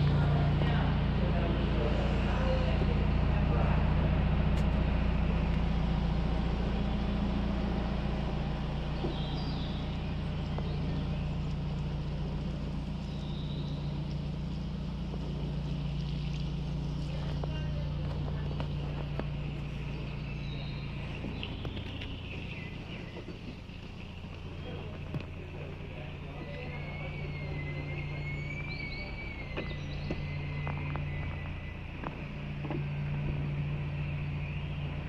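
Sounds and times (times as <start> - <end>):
boat diesel engine droning: 0.0 - 35.0.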